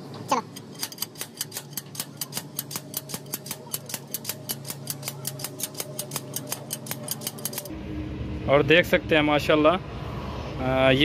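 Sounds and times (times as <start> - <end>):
ratchet clicking rapidly: 0.4 - 7.7.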